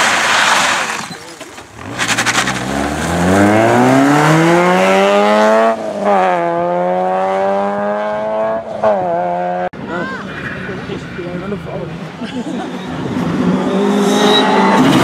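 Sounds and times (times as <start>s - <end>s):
car engine accelerating hard: 1.8s - 9.7s.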